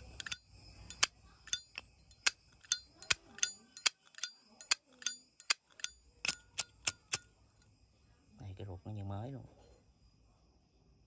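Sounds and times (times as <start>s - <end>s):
lighter lid clinking open and shut: 0.0s - 7.2s.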